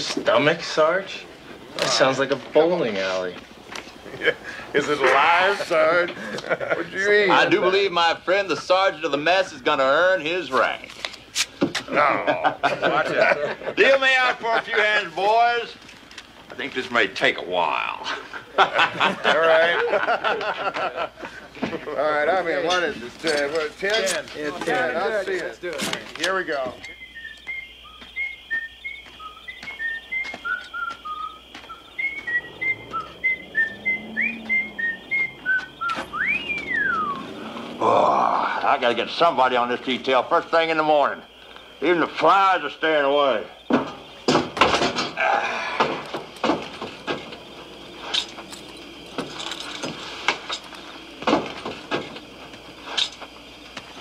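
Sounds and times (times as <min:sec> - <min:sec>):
man whistling a tune: 0:26.8 - 0:37.3
boots on wooden floorboards: 0:28.8 - 0:34.1.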